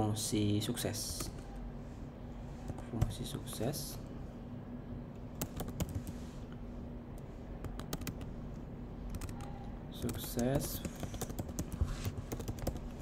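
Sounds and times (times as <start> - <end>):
keyboard typing: 5.4 - 6.1, 7.6 - 8.3, 9.0 - 13.0.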